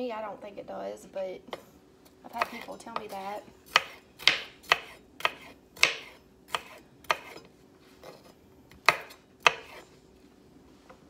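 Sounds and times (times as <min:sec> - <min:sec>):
knife chopping on wooden board: 0:02.3 - 0:09.9.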